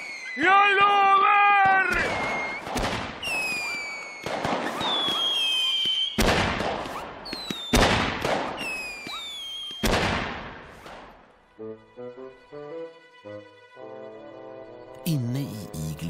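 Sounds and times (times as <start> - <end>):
fireworks bangs: 0.0 - 1.0, 1.6 - 11.2
whistling rockets: 0.0 - 1.0, 1.6 - 11.1
fireworks crackling: 1.9 - 11.1.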